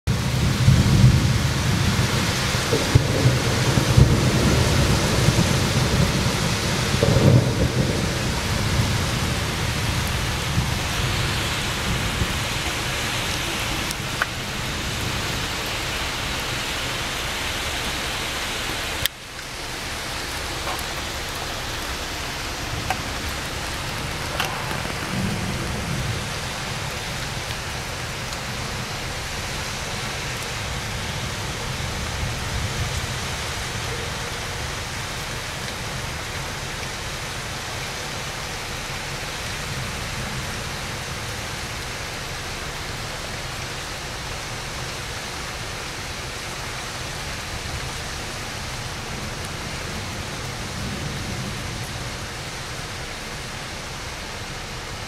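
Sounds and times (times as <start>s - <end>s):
thunder rumbling: 0.1s - 16.4s, 20.0s - 36.4s
rain hissing: 0.1s - 55.0s.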